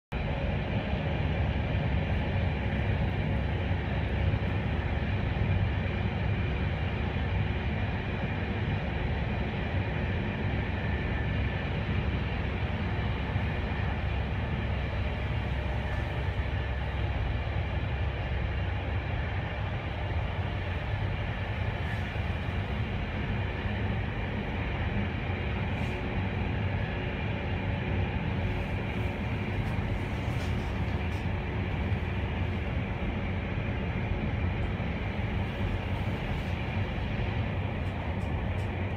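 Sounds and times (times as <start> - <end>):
train wheels rumbling on rail: 0.1 - 38.9.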